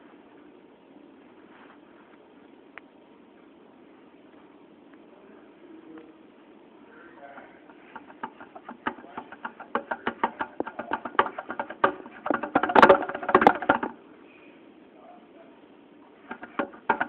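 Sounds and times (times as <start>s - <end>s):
rapid light tapping: 7.2s - 14.0s, 16.1s - 17.0s
camera handling knocks and rubbing: 7.6s - 14.0s, 16.3s - 17.0s.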